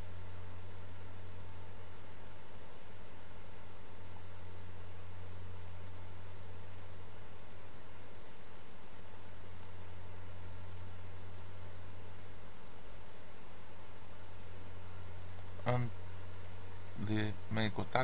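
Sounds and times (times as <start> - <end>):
low background hum: 0.0 - 18.0
computer mouse clicking: 2.4 - 2.7, 5.6 - 8.2, 8.8 - 9.8, 10.8 - 11.4.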